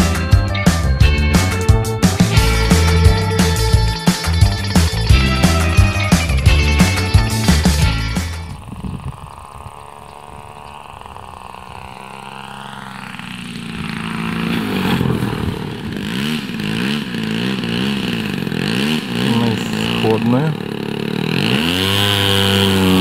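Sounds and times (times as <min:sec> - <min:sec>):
model airplane engine running: 0:02.3 - 0:23.0.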